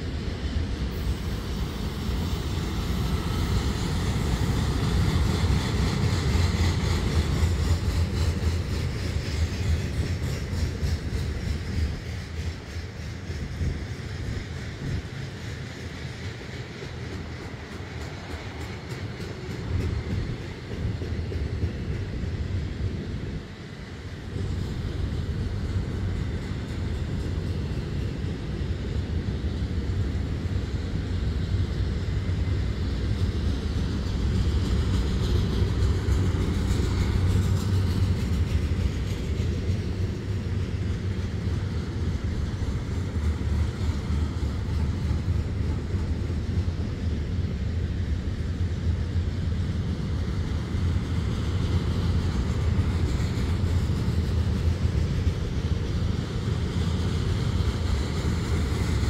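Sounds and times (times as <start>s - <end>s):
train wheels rumbling on rails: 0.0s - 59.0s.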